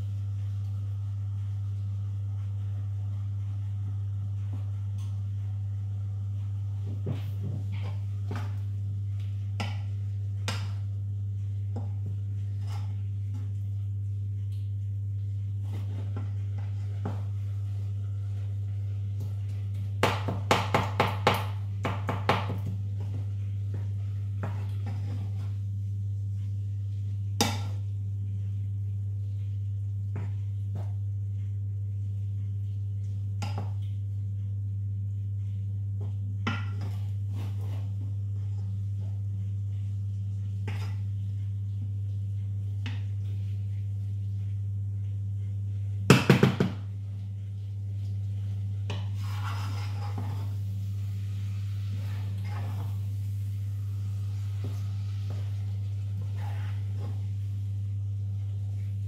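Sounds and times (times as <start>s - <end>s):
low hum: 0.0s - 59.0s
wooden spoon knocking on saucepan: 20.0s - 23.1s, 46.1s - 46.9s.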